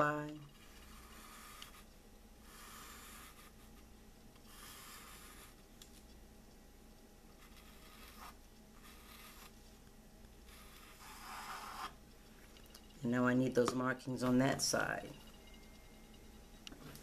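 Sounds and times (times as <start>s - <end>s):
charcoal scratching on canvas: 0.5s - 3.9s, 4.5s - 5.6s, 7.4s - 9.6s, 10.4s - 12.0s.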